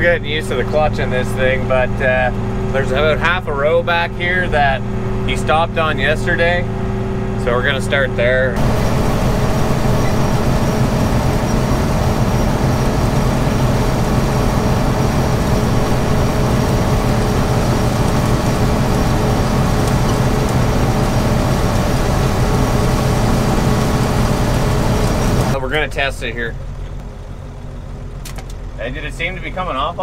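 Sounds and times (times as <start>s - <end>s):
combine harvester running: 0.0s - 30.0s
low machine hums: 0.0s - 30.0s.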